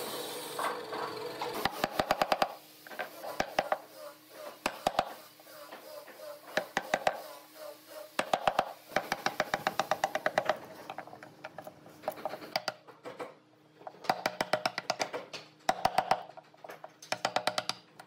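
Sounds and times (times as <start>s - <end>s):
hammer tapping steel chisel: 17.0s - 18.0s.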